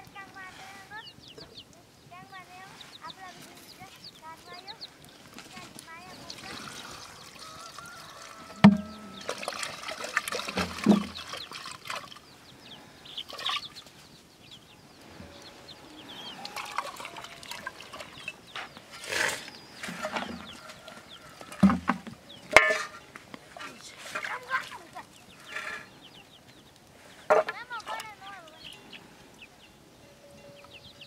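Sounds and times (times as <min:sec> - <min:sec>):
hens clucking: 0:00.0 - 0:14.0, 0:15.0 - 0:26.5
water pouring into metal pot: 0:06.2 - 0:12.2, 0:16.4 - 0:18.4
vessels knocking: 0:08.5 - 0:11.3.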